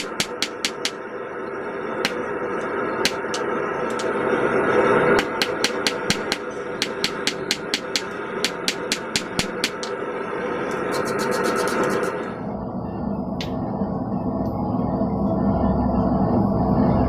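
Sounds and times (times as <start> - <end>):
hammer striking steel on anvil: 0.0 - 1.0, 2.0 - 2.4, 3.0 - 4.2, 5.1 - 10.0
steady rushing noise: 0.0 - 17.0.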